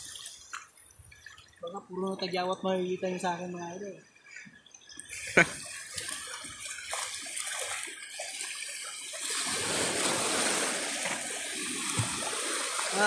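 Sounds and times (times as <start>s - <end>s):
splashing in shallow water: 4.9s - 13.0s
rushing wash of water: 5.1s - 13.0s.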